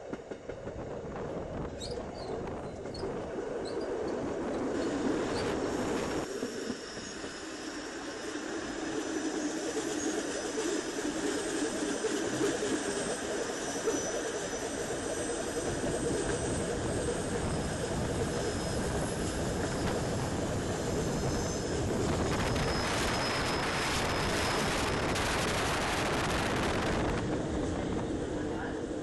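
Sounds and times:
train rumbling: 0.0 - 29.0
rushing air: 18.8 - 28.5.

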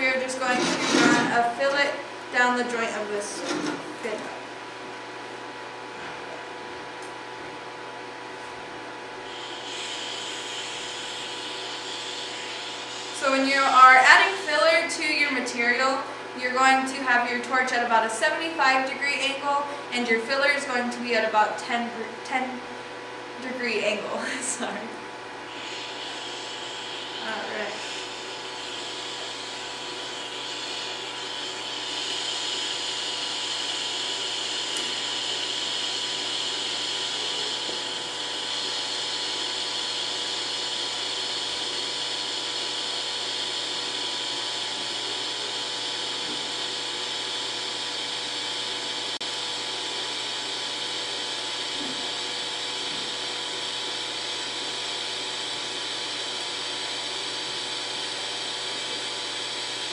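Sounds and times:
welding arc hissing: 9.3 - 14.7, 25.5 - 47.7.

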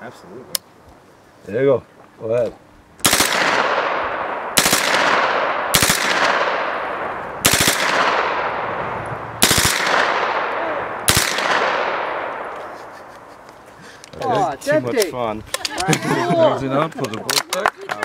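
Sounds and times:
gunfire echo: 3.0 - 13.0
submachine gun bursts: 7.4 - 7.9.

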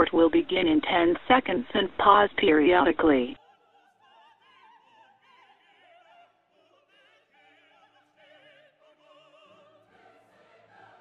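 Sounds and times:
faint opera singing: 3.1 - 11.0.

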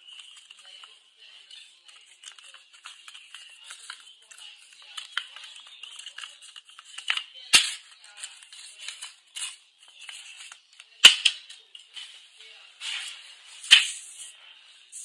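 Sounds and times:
paper folding and rustling: 0.0 - 10.9
paper sharp snaps: 13.7 - 14.0.

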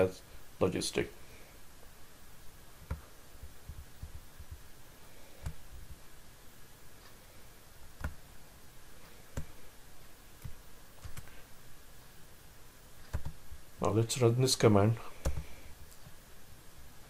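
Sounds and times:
faint room hiss: 0.0 - 17.0
computer mouse clicking: 2.8 - 4.6, 5.4 - 6.0, 8.0 - 8.2, 10.4 - 11.3, 13.1 - 13.4, 15.2 - 16.2.

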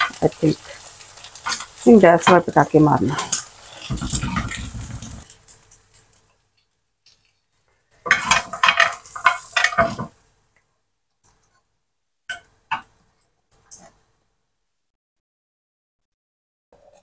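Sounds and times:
metal spoon scraping grill pan: 3.2 - 5.3.

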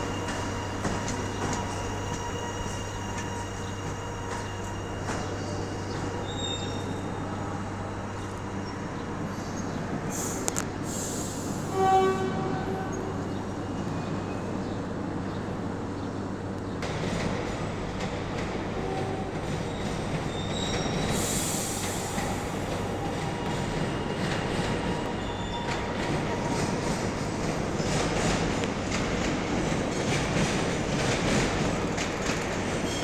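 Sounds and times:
train wheels on rails: 0.0 - 33.0
train horn blast: 11.6 - 13.4, 18.8 - 19.4.

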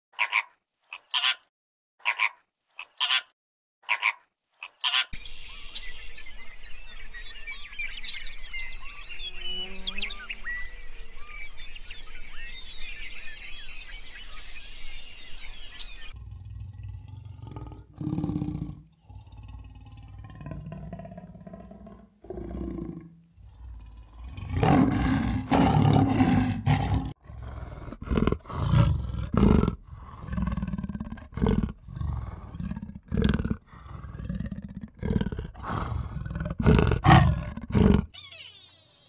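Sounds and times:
wild animal roaring: 16.0 - 38.1.

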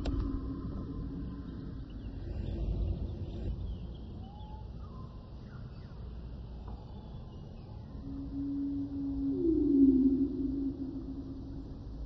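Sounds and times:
steady low rumble: 0.0 - 4.3, 7.8 - 12.0
faint bird-like chirps: 1.1 - 11.4.

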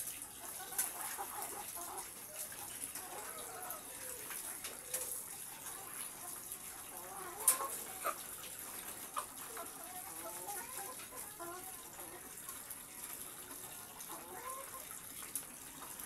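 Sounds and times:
hens clucking: 0.3 - 15.0.

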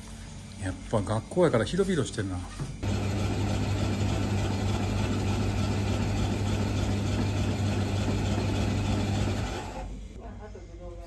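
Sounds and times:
ice being shaved: 2.8 - 9.9
motor hum: 2.8 - 10.1.

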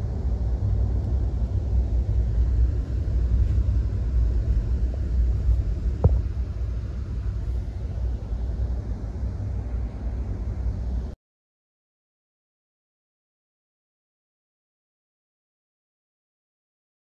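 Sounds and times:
vehicle interior rumble: 0.0 - 11.1
sharp knock: 6.0 - 6.3.

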